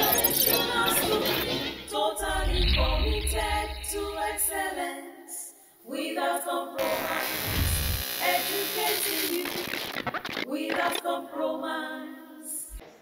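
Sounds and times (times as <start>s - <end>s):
voices singing held notes: 0.0s - 9.7s, 10.5s - 12.6s
low bass: 7.5s - 8.0s.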